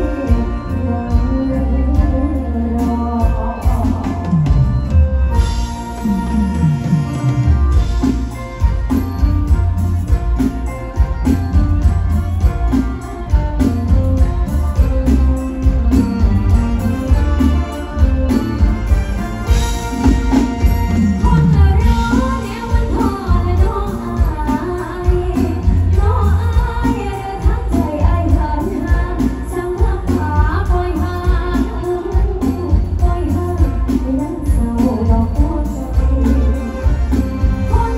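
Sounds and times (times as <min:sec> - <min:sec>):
woman singing: 0:00.0 - 0:08.1, 0:20.4 - 0:37.9
heavy bass and drum beat: 0:00.0 - 0:37.9
live band music over speakers: 0:00.0 - 0:37.9.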